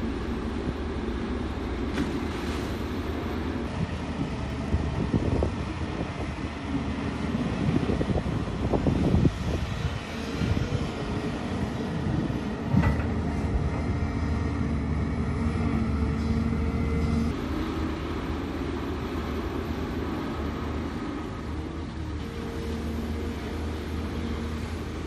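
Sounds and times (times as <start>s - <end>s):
dump truck diesel engine: 0.0s - 25.0s
excavator diesel engine running: 0.0s - 25.0s.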